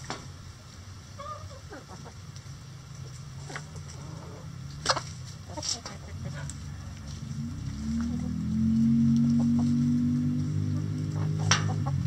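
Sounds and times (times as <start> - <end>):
hen calls: 1.2 - 2.2
hens clucking: 1.2 - 2.4, 3.0 - 7.0, 9.3 - 9.9, 10.8 - 12.0.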